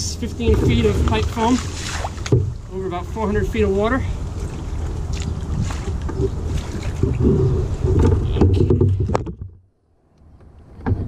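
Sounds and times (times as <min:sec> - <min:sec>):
wind rumbling on microphone: 0:00.0 - 0:09.6
knocks against boat hull: 0:06.1 - 0:09.6.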